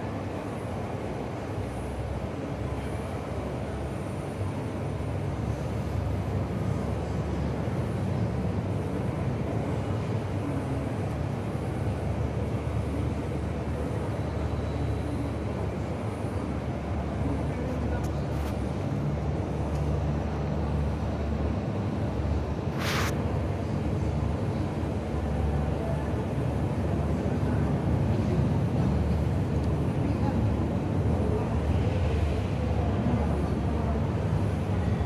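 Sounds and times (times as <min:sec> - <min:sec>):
airport apron rumble: 0:00.0 - 0:35.0
burst of hiss: 0:22.7 - 0:23.2.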